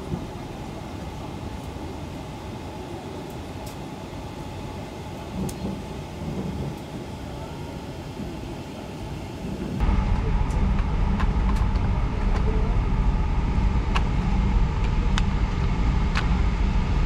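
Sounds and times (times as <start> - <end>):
vehicle interior rumble: 9.8 - 17.0.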